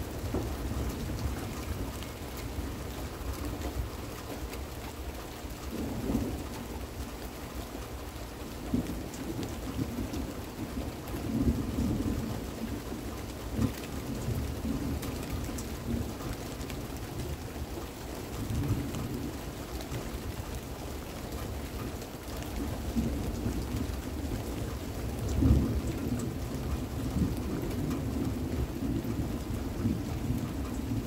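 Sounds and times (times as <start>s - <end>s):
steady rain falling: 0.0s - 31.0s.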